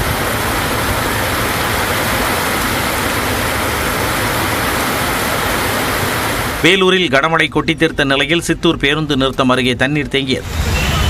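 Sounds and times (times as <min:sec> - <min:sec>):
heavy rain on wet road: 0:00.0 - 0:06.6
vehicles on waterlogged road: 0:00.0 - 0:06.8, 0:10.0 - 0:11.0.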